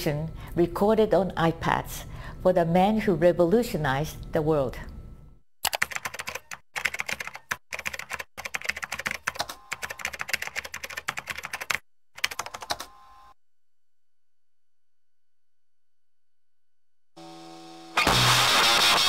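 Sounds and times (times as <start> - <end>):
keyboard typing: 5.6 - 12.9.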